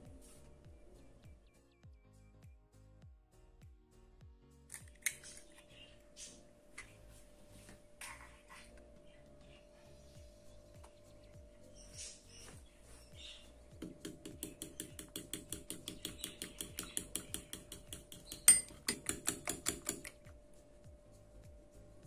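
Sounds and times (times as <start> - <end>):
fork clinking against bowl: 14.8 - 20.2.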